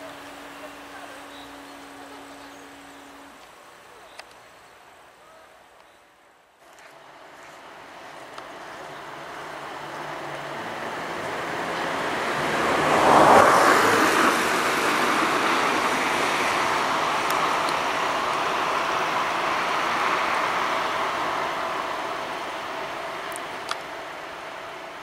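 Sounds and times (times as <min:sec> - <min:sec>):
vehicle passing: 0:07.3 - 0:22.7.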